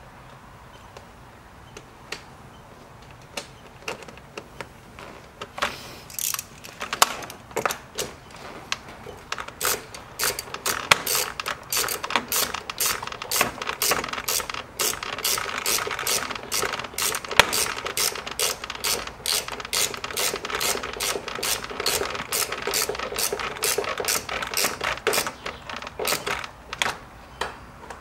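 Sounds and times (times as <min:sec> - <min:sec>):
hand ratchet clicking: 0:06.1 - 0:06.8, 0:09.4 - 0:26.9.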